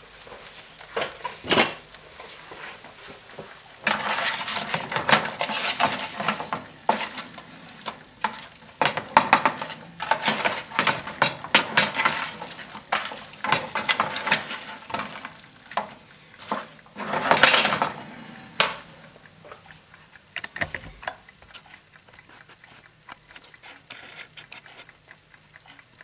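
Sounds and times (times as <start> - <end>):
potatoes sizzling in hot oil: 0.0 - 18.3.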